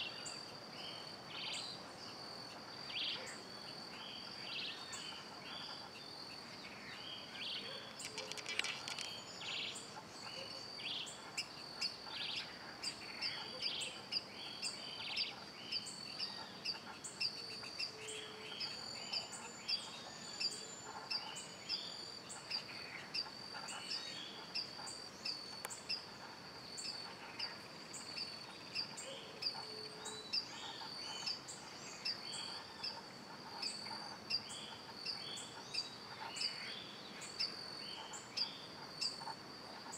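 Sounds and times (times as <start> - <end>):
high insect drone: 0.0 - 39.9
birds chirping and calling: 7.2 - 26.2.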